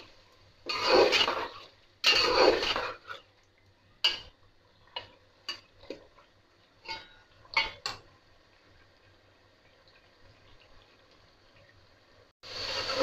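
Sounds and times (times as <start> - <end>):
metal spatula scraping pot: 0.6 - 3.3.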